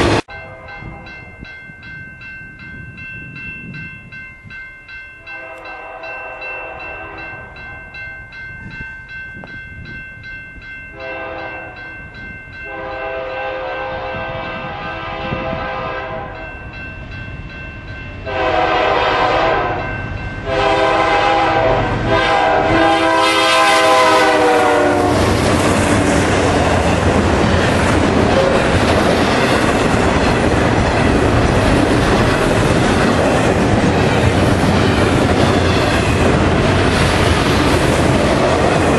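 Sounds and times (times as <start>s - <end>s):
train rumble and wheel clatter: 0.0s - 38.9s
locomotive horn blasts: 0.3s - 1.3s, 5.3s - 7.9s, 11.0s - 11.8s, 12.6s - 16.4s, 18.2s - 25.2s, 28.4s - 28.7s.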